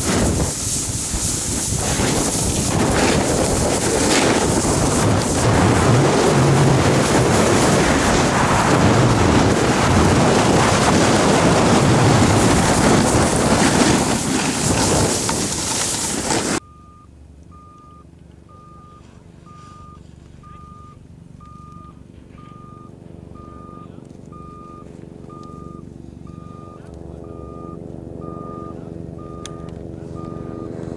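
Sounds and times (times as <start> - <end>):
wind buffeting microphone: 0.0 - 16.6
high electronic beep: 16.6 - 30.8.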